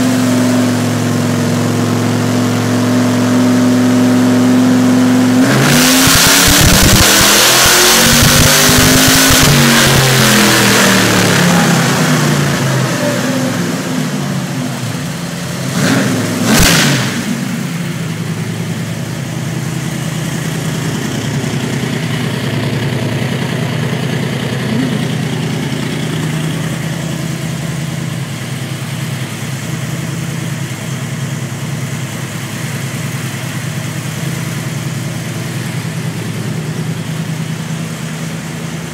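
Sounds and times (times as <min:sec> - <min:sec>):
truck engine revving on dyno: 0:00.0 - 0:29.1
engine idling: 0:00.0 - 0:38.9
engine throttle blips: 0:04.4 - 0:38.9
sharp exhaust crack: 0:06.0 - 0:28.4.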